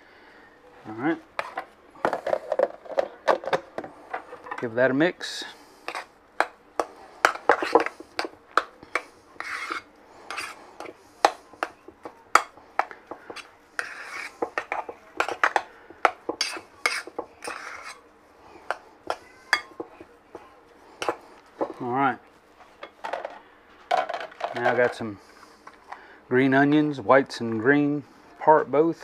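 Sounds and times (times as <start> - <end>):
soft scraping of thick mixture: 5.5 - 6.2, 6.8 - 12.0, 12.6 - 22.8.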